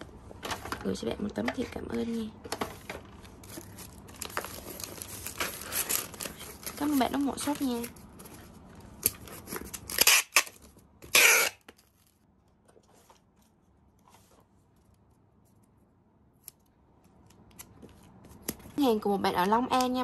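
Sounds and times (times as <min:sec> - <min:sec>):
faint handling sounds: 0:00.1 - 0:09.8, 0:11.7 - 0:18.9
packing tape pulled off roll: 0:09.0 - 0:12.2.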